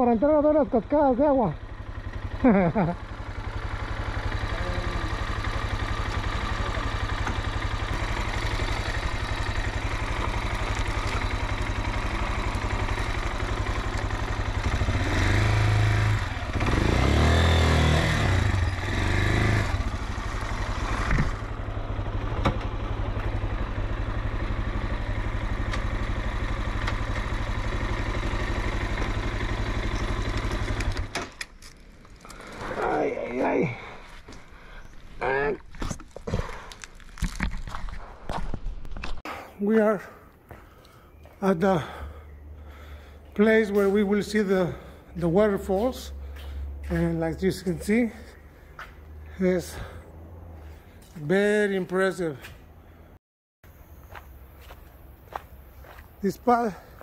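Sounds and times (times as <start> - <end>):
motorcycle engine running and revving: 0.0 - 31.4.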